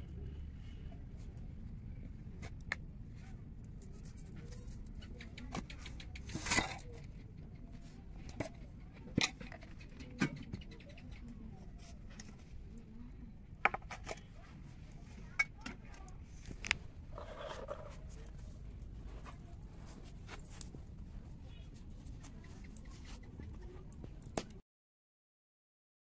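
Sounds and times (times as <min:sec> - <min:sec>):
low steady hum: 0:00.0 - 0:05.8.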